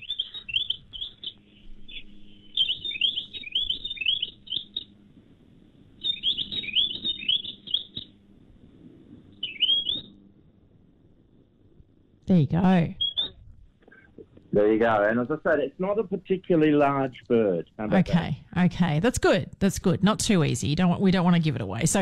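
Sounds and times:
songbird call: 0.0 - 5.0, 6.0 - 8.1, 9.4 - 10.1.

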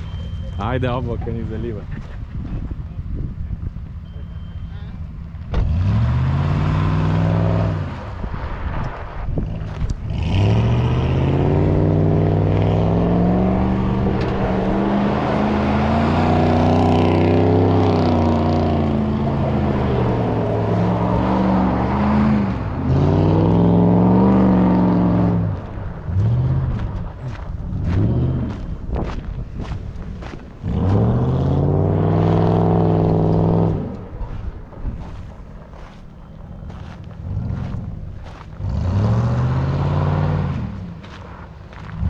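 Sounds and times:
truck engine revving hard: 5.5 - 8.6, 9.5 - 29.2, 30.2 - 34.0, 36.7 - 41.1
tyres on loose gravel: 7.5 - 22.8, 24.2 - 42.0.

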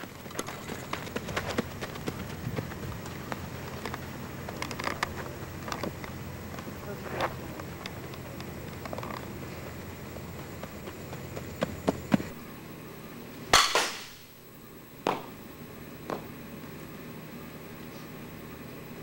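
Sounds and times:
bat cracking against ball: 13.5 - 14.3.

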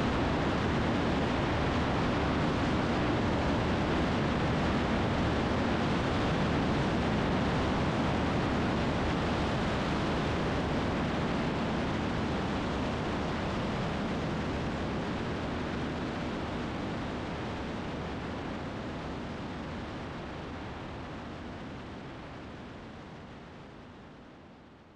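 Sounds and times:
wind noise: 0.0 - 22.8
light aircraft engine drone: 0.0 - 24.9.

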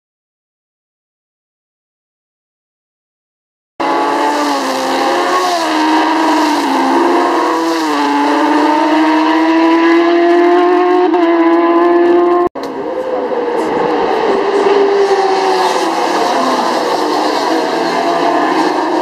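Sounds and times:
racing motorcycle engine revving: 3.8 - 12.5.

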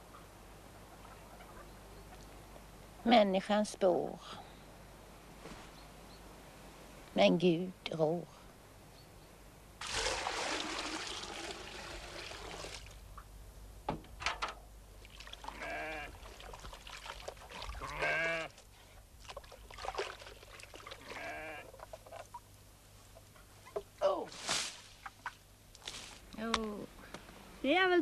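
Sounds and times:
water pouring into wooden tub: 9.8 - 13.0, 15.0 - 18.0, 19.2 - 22.2
animal bleating: 15.4 - 16.2, 17.6 - 18.6, 21.0 - 21.8.

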